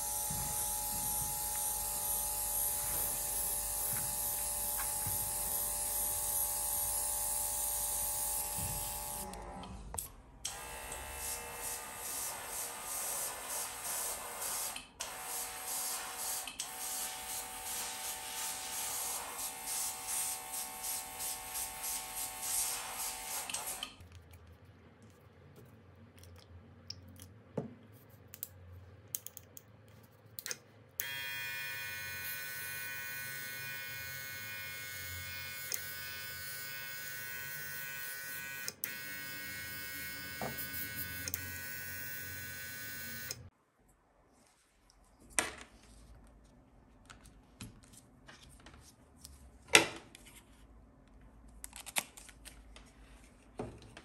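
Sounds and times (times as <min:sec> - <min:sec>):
airbrush compressor running: 0:00.0 - 0:09.3, 0:31.0 - 0:43.5.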